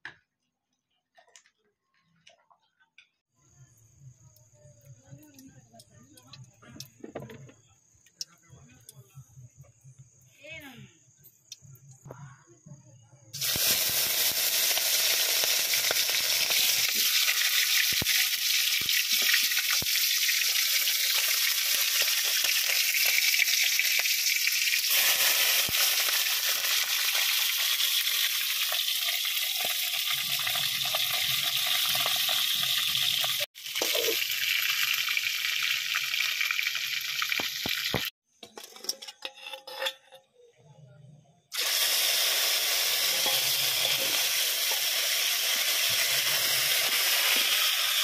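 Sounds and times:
chicken sizzling in hot oil: 0:13.4 - 0:38.2, 0:41.5 - 0:48.0.

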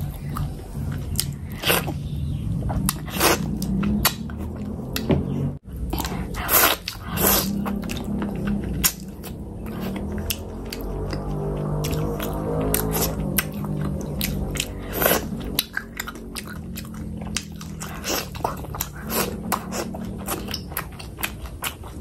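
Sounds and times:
wet chewing and lip smacks: 0:05.8 - 0:22.0.

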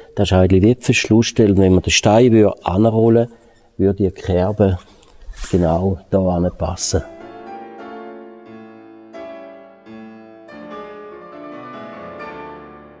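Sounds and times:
slow piano chords: 0:06.7 - 0:13.0.

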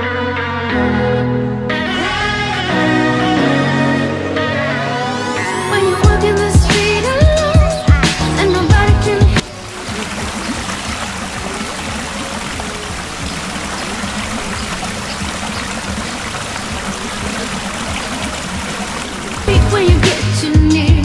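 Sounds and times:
water splashing over rock ledge: 0:09.3 - 0:20.5.

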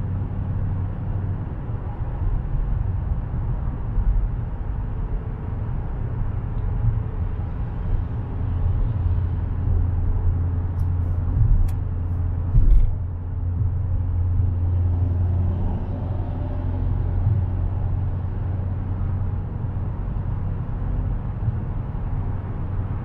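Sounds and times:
car engine hum: 0:00.0 - 0:23.0
tyre and road noise: 0:01.6 - 0:23.0
thump: 0:12.5 - 0:13.0.

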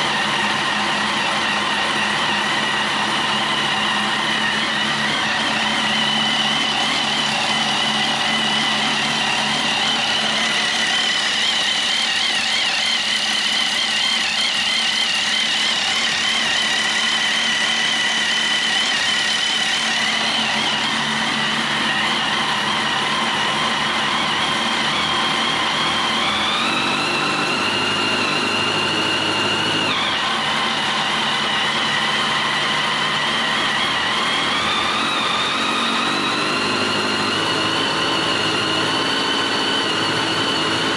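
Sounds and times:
motorcycle engine idling and revving: 0:00.0 - 0:40.9.

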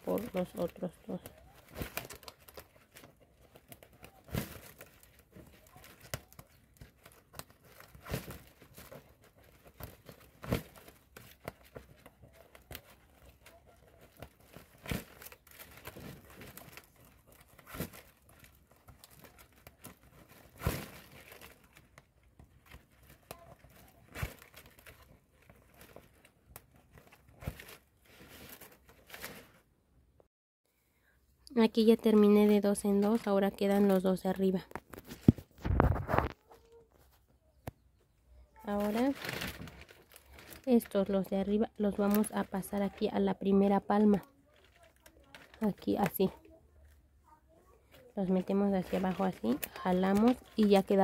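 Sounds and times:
dried palm leaves crackling: 0:00.0 - 0:29.6, 0:38.5 - 0:46.5, 0:48.0 - 0:51.0.

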